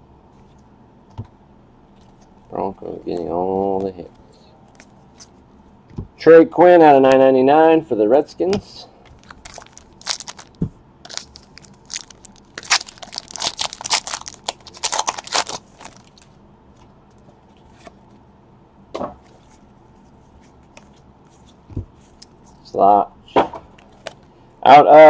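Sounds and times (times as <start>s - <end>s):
foil wrapper crinkling and tearing: 9.1s - 16.3s
cards rustling: 9.1s - 18.2s.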